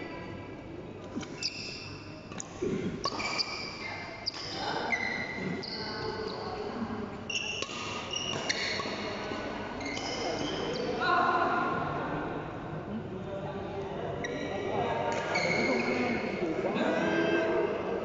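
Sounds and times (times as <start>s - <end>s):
shoes squeaking on court floor: 1.2s - 11.0s, 14.2s - 16.4s.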